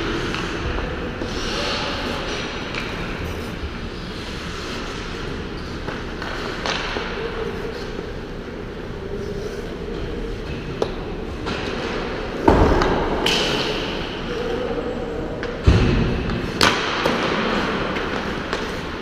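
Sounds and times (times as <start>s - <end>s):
knocks of pucks and sticks: 5.8s - 7.2s, 15.4s - 19.0s.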